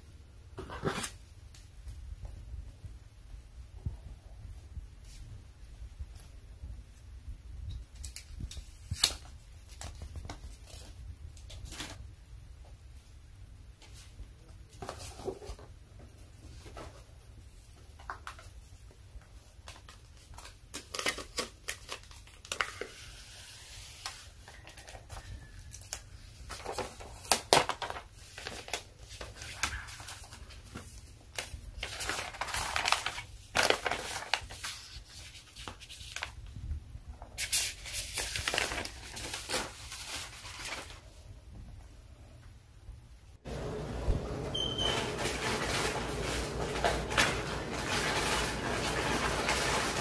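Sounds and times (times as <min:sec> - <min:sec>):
plastic wrap crinkling and tearing: 0:07.9 - 0:12.0, 0:19.6 - 0:36.5, 0:37.3 - 0:41.2, 0:44.5 - 0:50.0.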